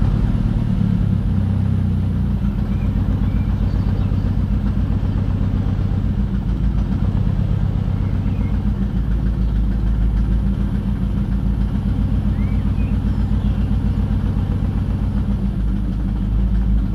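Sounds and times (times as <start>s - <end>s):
car engine idling: 0.0s - 16.9s.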